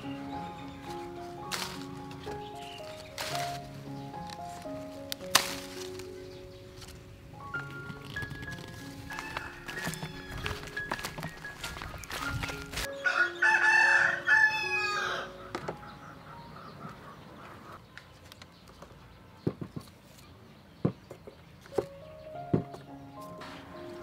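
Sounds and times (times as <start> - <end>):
rooster crowing: 9.0 - 11.1, 12.9 - 15.5.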